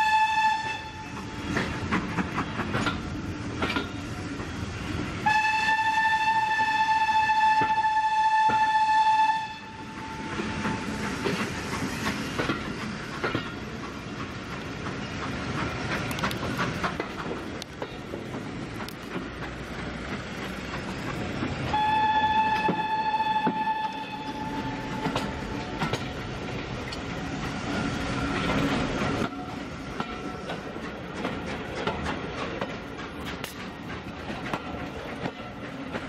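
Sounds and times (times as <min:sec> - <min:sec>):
long high train whistle: 0:00.0 - 0:01.6, 0:05.2 - 0:11.0, 0:21.7 - 0:25.9
train wheels clattering: 0:00.0 - 0:05.8, 0:07.3 - 0:36.0.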